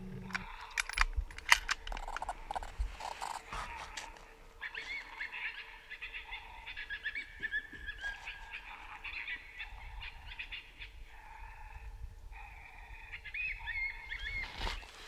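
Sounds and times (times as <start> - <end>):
coyotes yipping: 1.6 - 15.0
coyote howling: 3.3 - 14.4.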